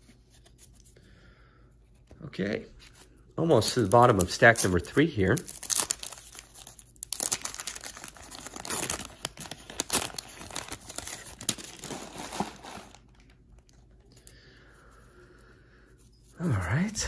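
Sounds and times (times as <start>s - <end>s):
wax-paper wrapper crinkling and tearing: 2.9s - 14.1s.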